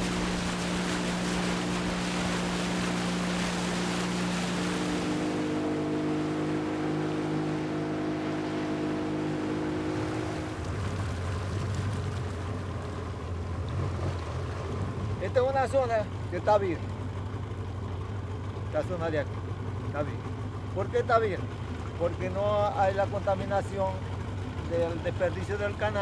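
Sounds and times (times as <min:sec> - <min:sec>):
water and wind rushing: 0:00.0 - 0:17.2
boat motor running: 0:00.0 - 0:26.0.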